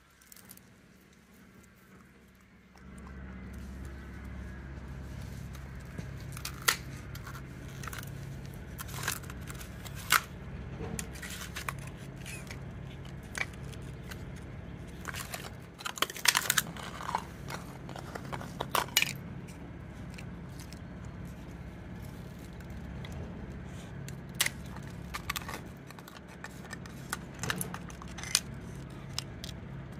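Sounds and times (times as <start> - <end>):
dog crunching ice: 0.0 - 10.4, 11.0 - 29.9
steady low hum: 0.0 - 29.9
ice cracking: 14.9 - 19.2.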